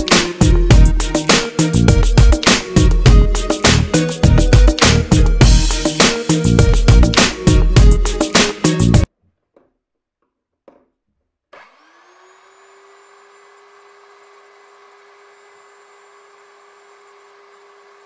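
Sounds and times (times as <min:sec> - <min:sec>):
rotary hammer motor whine: 0:11.6 - 0:18.0.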